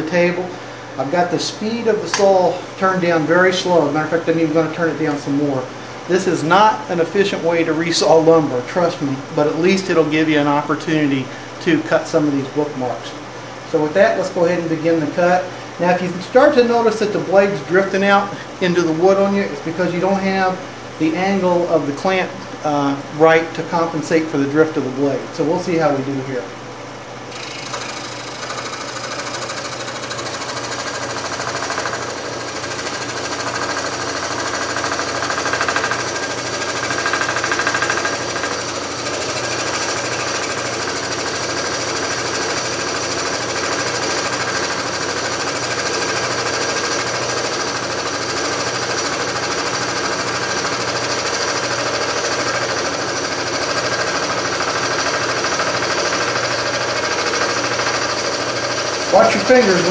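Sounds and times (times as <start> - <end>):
scroll saw cutting wood: 27.3 - 59.9.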